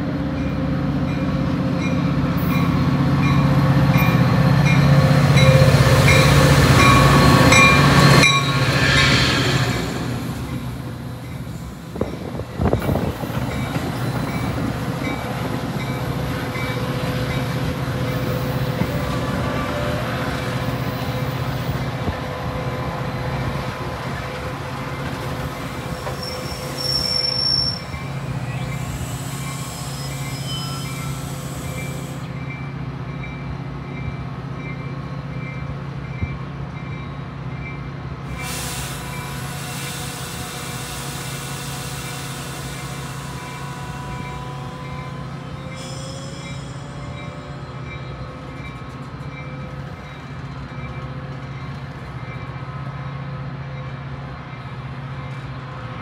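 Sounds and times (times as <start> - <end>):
diesel train engine hum: 0.0 - 56.0
high-pitched squeal: 25.8 - 32.4.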